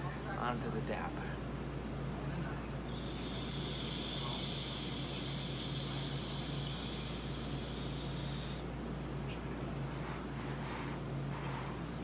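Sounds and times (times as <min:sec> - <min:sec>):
concentrate sizzling hiss: 0:02.9 - 0:09.2.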